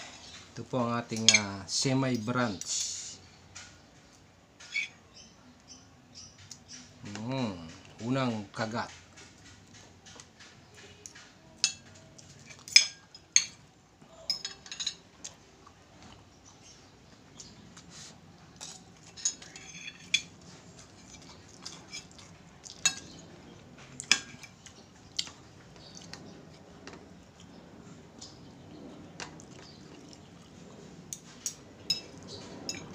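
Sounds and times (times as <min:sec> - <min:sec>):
cutlery clinking on a plate: 0:11.6 - 0:13.6, 0:14.3 - 0:15.0, 0:18.6 - 0:20.4, 0:21.1 - 0:23.2, 0:24.0 - 0:24.6, 0:31.9 - 0:32.9.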